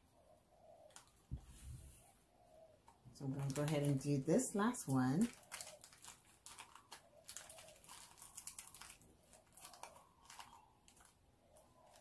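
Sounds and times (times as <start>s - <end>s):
plastic wrappers crinkling: 3.2s - 12.0s.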